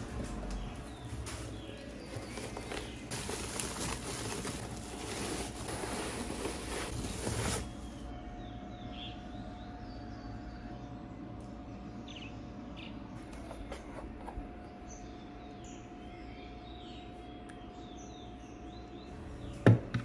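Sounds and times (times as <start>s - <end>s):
faint steady hum: 0.0s - 20.0s
packaging rustling and clicking: 1.2s - 7.8s.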